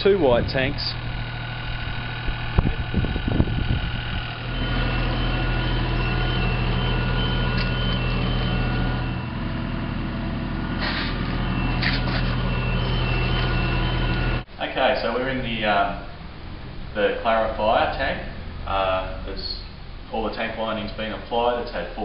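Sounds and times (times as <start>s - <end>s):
engine running: 0.0s - 14.5s, 15.1s - 22.0s
electronic beeping alarm: 1.0s - 14.5s.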